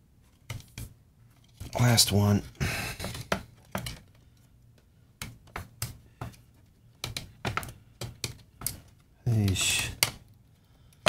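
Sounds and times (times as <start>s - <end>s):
clicks and knocks handling plastic device: 3.0s - 4.5s, 7.0s - 11.0s.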